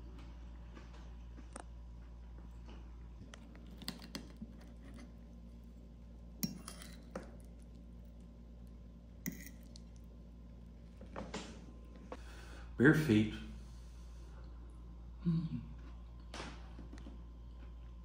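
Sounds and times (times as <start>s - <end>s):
fork clinking on ceramic plate: 6.4s - 7.1s.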